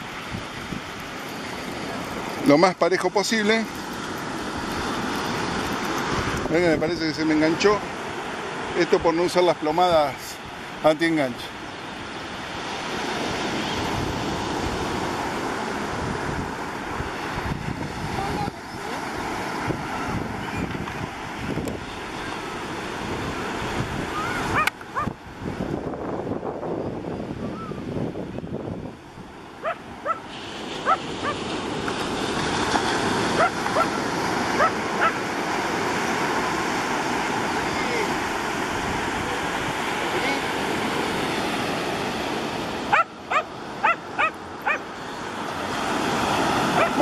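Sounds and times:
ocean surf washing in: 0.0 - 47.0
wind buffeting microphone: 12.4 - 39.9
dog yapping: 24.5 - 25.1, 29.6 - 30.2, 30.8 - 31.4, 33.4 - 33.9, 34.6 - 35.2, 42.9 - 44.8, 46.8 - 47.0.

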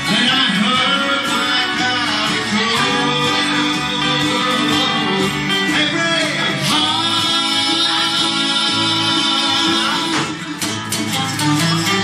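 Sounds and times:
live band playing: 0.0 - 12.0
strummed guitars: 0.0 - 12.0.

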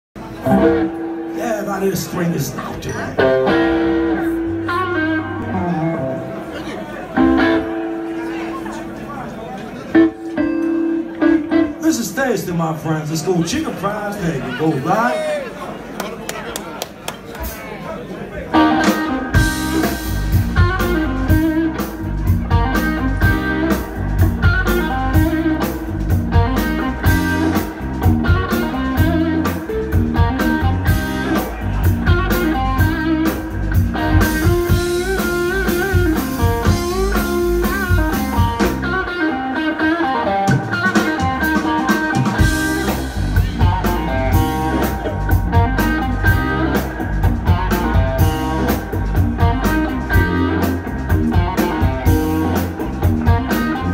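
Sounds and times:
bass guitar: 0.2 - 12.5, 18.5 - 53.9
electric guitar: 0.2 - 12.5, 18.5 - 53.9
drum kit steady beat: 18.6 - 39.1, 40.5 - 53.9.

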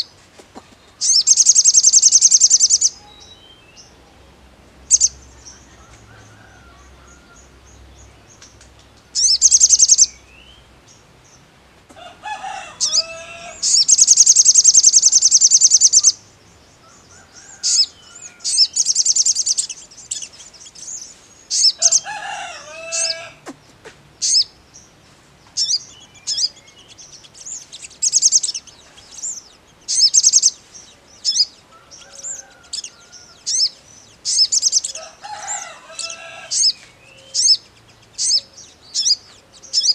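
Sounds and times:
bird chirping: 0.0 - 11.5, 12.4 - 39.9
fast bird trill: 1.0 - 3.0, 9.2 - 10.1, 12.8 - 16.2, 24.2 - 24.5, 27.2 - 30.6.

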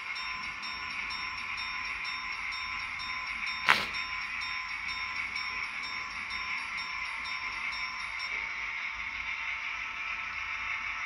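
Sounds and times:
level crossing bell ringing: 0.0 - 8.6.

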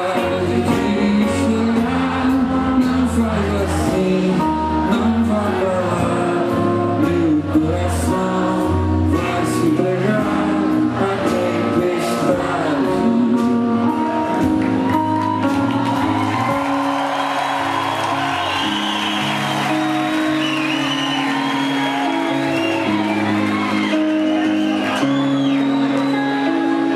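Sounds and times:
drums: 0.0 - 26.9
electric guitars: 0.0 - 26.9.

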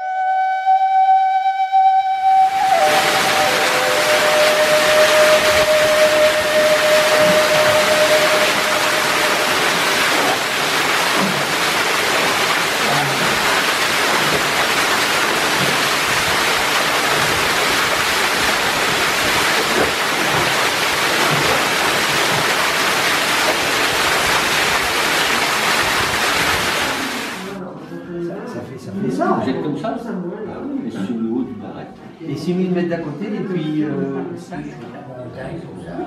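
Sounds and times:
waterfall rushing into pool: 2.4 - 27.6.

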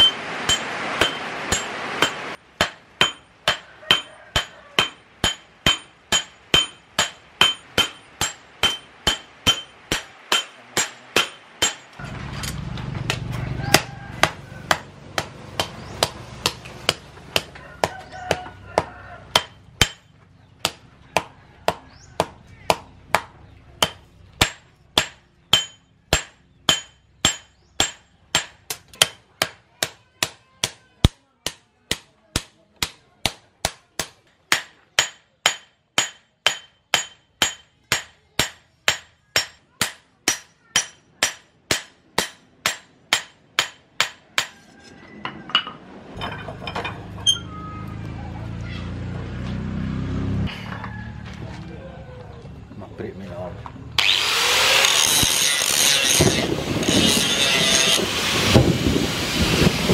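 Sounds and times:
hammer striking blade on anvil: 0.0 - 12.0, 23.8 - 30.8, 31.5 - 44.6.

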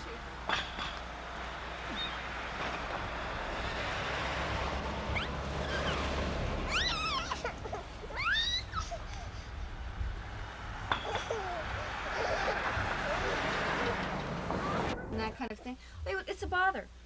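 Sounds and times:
steady rushing hiss: 0.0 - 17.0
high wavering cries: 5.0 - 15.4.

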